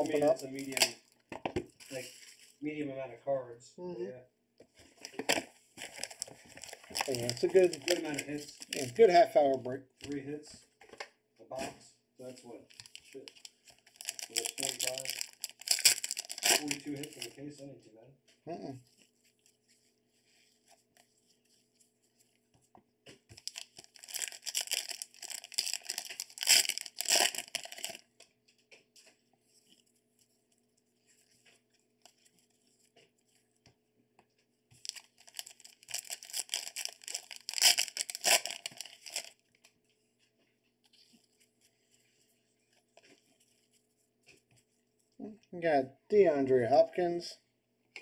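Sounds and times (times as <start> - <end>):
wrapping tearing and crinkling: 0.0 - 1.2, 4.8 - 9.2, 12.7 - 17.4, 23.3 - 28.2, 34.8 - 39.8.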